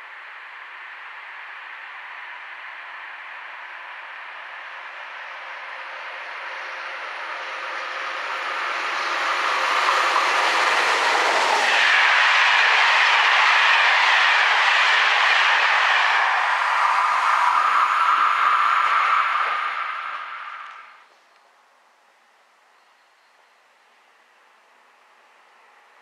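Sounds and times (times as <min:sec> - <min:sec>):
passenger train passing: 0:00.3 - 0:21.1.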